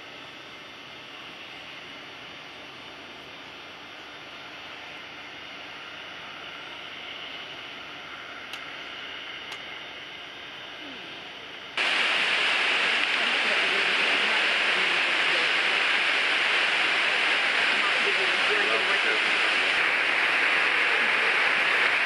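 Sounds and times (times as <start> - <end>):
waterfall rushing: 11.8 - 22.0.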